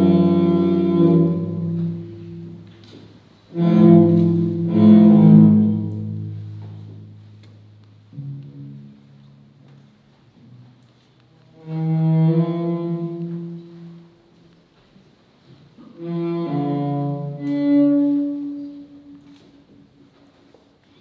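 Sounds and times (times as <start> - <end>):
bowed cello long notes: 0.0 - 9.9, 11.4 - 14.4, 15.8 - 19.7.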